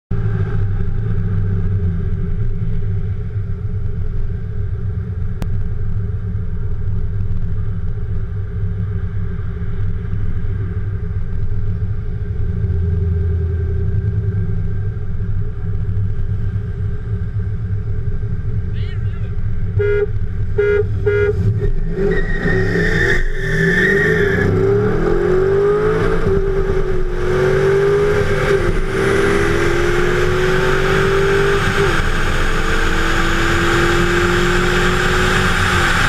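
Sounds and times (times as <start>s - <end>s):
car engines idling: 0.2s - 22.0s.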